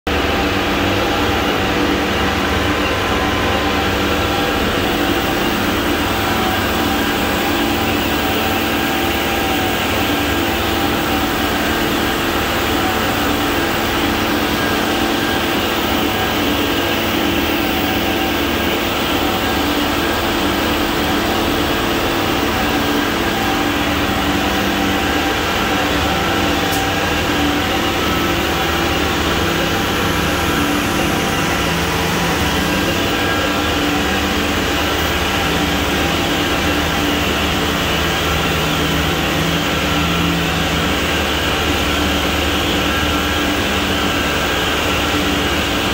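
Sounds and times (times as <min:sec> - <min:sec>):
concrete plant mechanical drone: 0:00.1 - 0:45.9.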